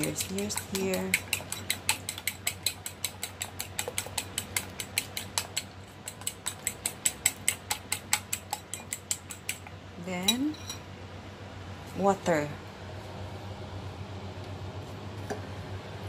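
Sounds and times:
fork beating eggs in bowl: 0.0 - 10.6.

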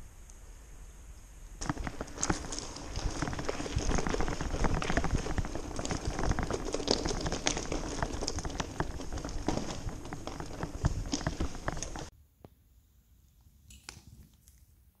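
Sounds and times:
bike rattling over bumps: 1.6 - 12.1
bike tyres crunching over stones: 1.6 - 12.1.

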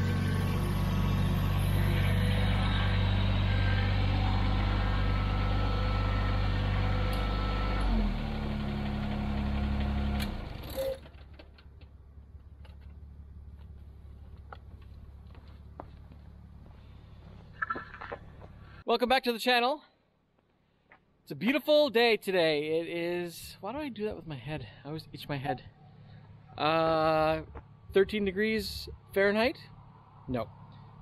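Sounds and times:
tractor diesel engine running: 0.0 - 18.8.

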